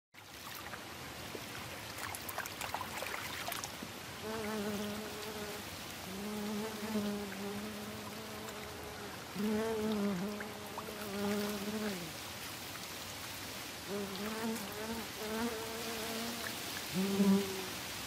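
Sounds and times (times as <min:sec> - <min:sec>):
insect buzzing: 0:04.2 - 0:12.2, 0:13.9 - 0:17.9.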